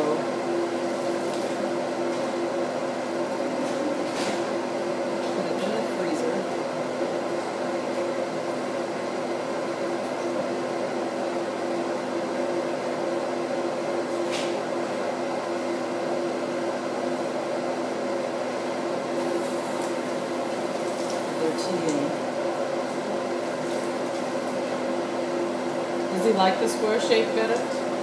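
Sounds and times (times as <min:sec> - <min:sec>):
appliance motor humming: 0:18.1 - 0:28.0.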